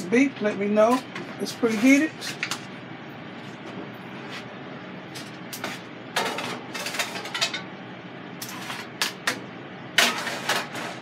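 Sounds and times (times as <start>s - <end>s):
metal cookware clattering: 6.2s - 7.7s, 10.0s - 11.0s.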